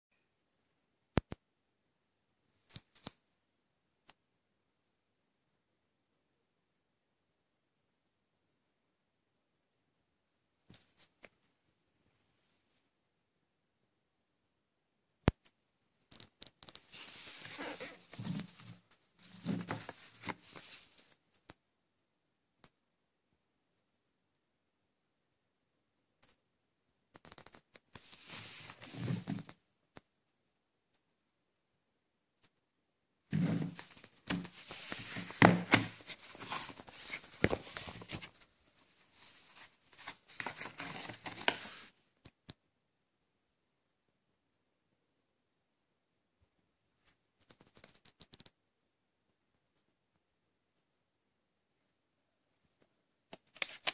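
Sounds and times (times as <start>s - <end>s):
plastic rustling and scraping: 16.7s - 21.1s, 33.3s - 38.4s, 39.1s - 41.9s.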